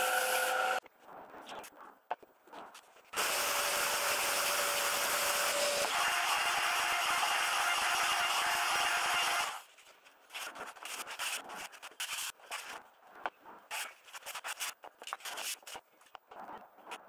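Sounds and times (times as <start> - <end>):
sandpaper scraping plywood: 10.3 - 12.8.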